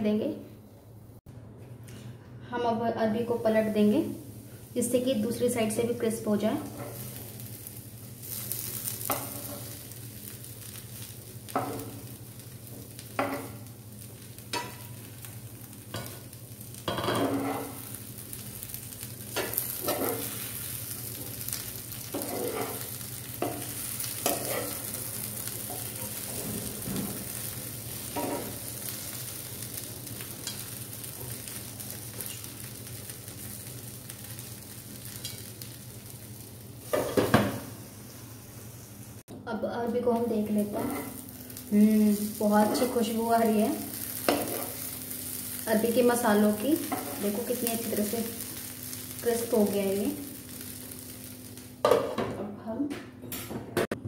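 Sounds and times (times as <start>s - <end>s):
taro sizzling in oil: 3.1s - 52.3s
metal spoon scraping pan: 22.1s - 22.8s.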